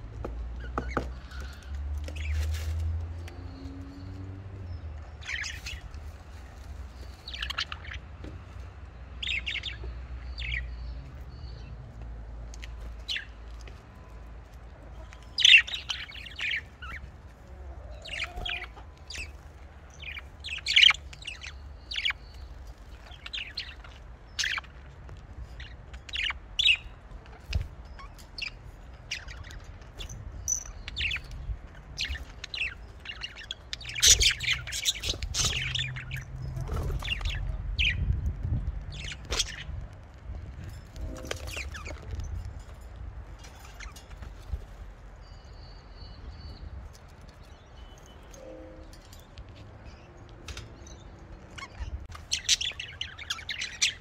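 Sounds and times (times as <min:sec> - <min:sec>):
budgerigars chirping: 0:07.2 - 0:08.1, 0:15.2 - 0:17.1, 0:20.0 - 0:24.8, 0:25.6 - 0:38.1, 0:38.9 - 0:39.7, 0:51.5 - 0:54.0.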